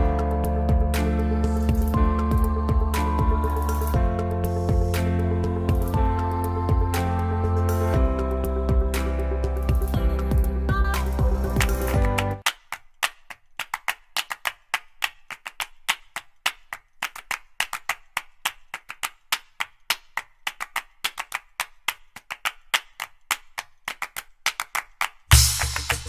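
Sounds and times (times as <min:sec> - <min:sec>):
music with percussion: 0:00.0 - 0:12.5, 0:25.3 - 0:26.0.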